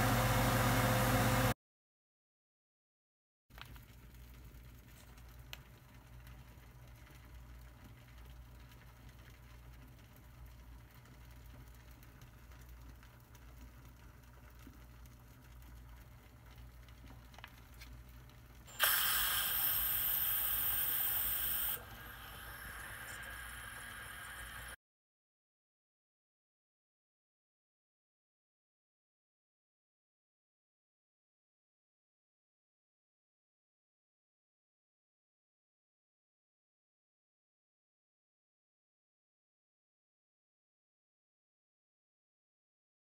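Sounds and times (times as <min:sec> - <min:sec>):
pressure cooker hissing: 0:00.0 - 0:01.5, 0:18.7 - 0:24.8
water boiling: 0:03.5 - 0:24.8.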